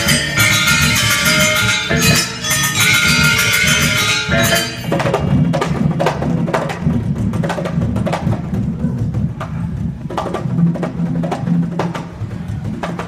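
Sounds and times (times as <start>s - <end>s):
ringing bronze gamelan instruments: 0.0s - 5.9s
hand drum slaps: 0.0s - 13.0s
low steady drum tone: 0.0s - 13.0s.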